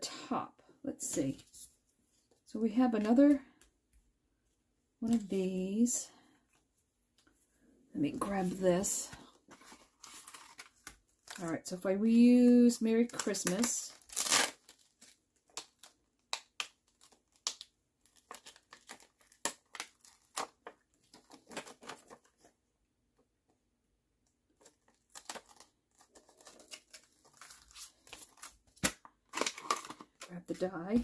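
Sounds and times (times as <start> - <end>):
plastic packaging crinkling: 8.2 - 11.8, 12.4 - 22.5, 24.6 - 31.0.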